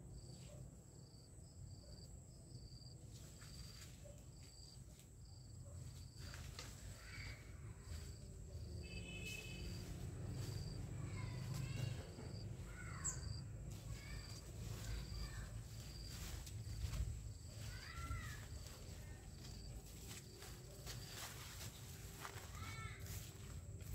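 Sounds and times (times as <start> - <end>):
insect chirping: 0.1 - 23.9
footsteps rustling through leaves: 6.0 - 23.9
birds calling: 12.6 - 14.2.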